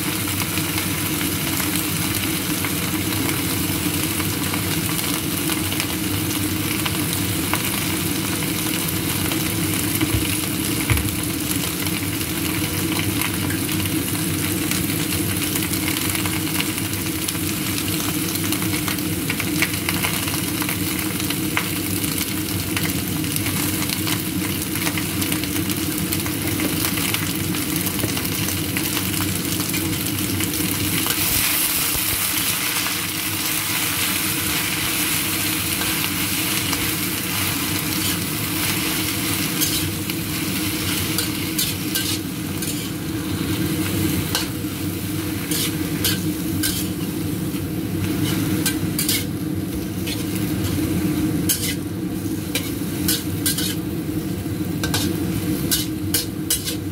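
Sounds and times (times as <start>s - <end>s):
lettuce sizzling in a wok: 0.0s - 56.9s
metal spatula scraping a wok: 34.0s - 44.6s, 45.2s - 53.9s, 54.8s - 56.9s.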